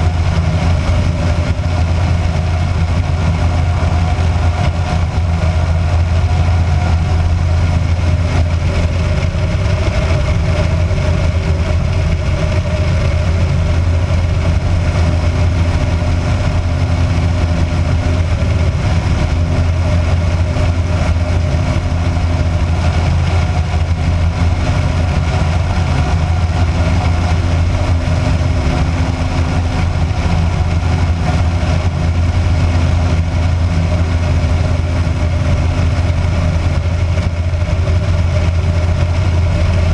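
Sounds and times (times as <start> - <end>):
aircraft engine and propeller drone: 0.0 - 39.9.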